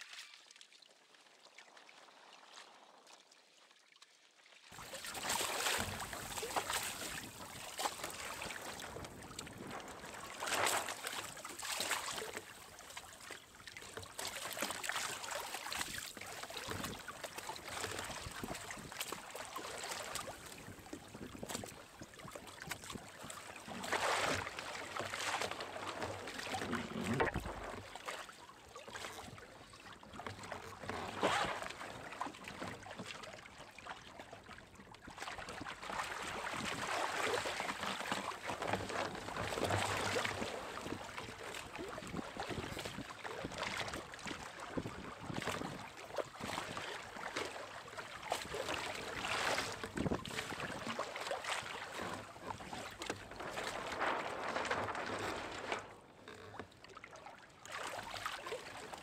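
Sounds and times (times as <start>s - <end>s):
water rushing along hull: 4.6s - 59.0s
waves slapping against hull: 4.7s - 59.0s.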